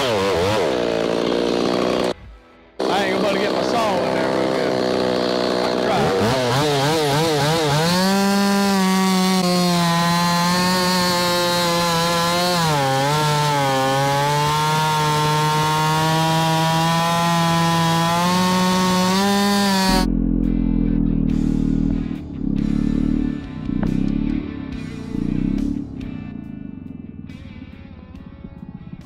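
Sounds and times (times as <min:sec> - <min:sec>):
chainsaw cutting log: 0:00.0 - 0:02.2, 0:02.8 - 0:20.1
chainsaw revving: 0:00.0 - 0:02.2, 0:02.8 - 0:20.1.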